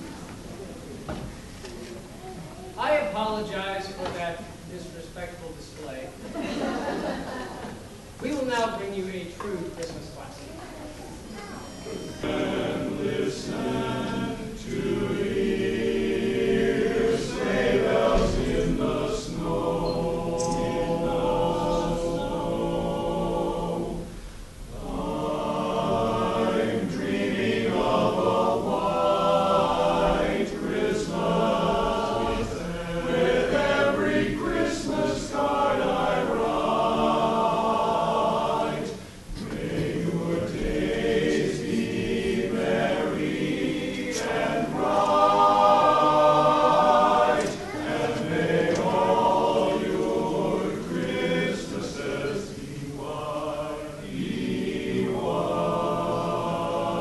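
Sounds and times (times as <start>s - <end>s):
men's chorus singing a cappella: 12.0s - 57.0s.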